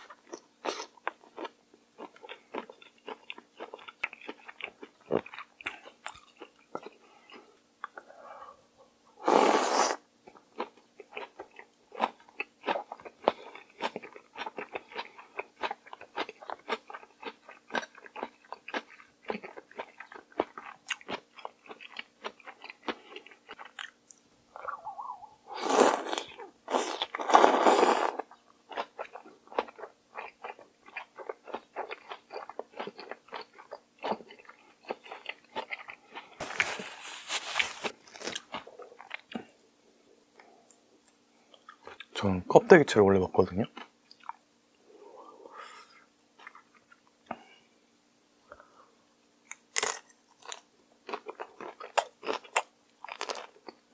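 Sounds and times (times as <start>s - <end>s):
wet slurping of food: 9.2s - 10.0s, 25.5s - 28.2s
chewing and biting seafood: 10.3s - 23.9s, 25.6s - 39.5s, 49.6s - 53.8s.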